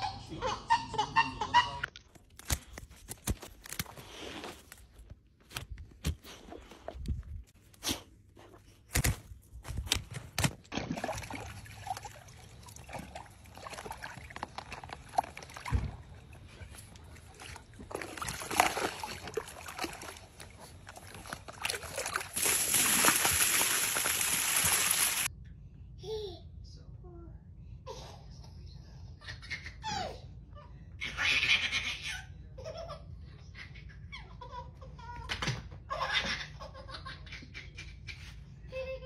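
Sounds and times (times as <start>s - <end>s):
water sloshing and splashing: 9.8s - 25.3s
water spilling over tub edge: 10.7s - 25.3s.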